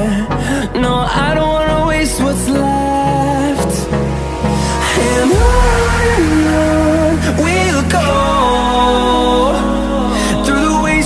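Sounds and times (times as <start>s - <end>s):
pop song: 0.0s - 11.0s.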